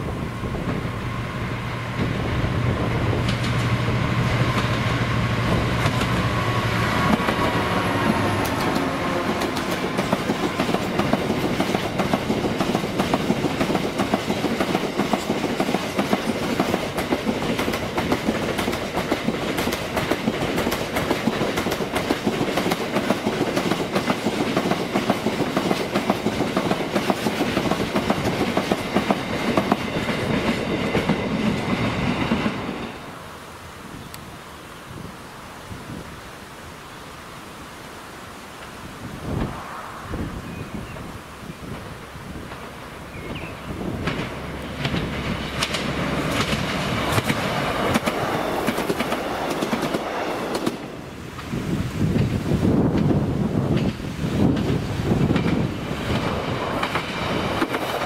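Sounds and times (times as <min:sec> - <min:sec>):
diesel locomotive engine: 0:00.0 - 0:34.9, 0:38.6 - 0:58.0
train wheels clickety-clack: 0:02.9 - 0:32.9, 0:43.3 - 0:58.0.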